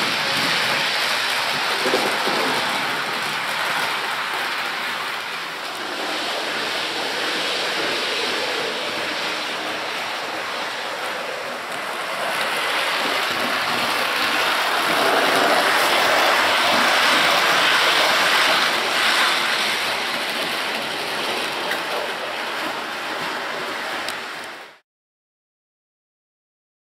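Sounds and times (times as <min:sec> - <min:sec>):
model train wheels on rails: 0:00.0 - 0:24.8.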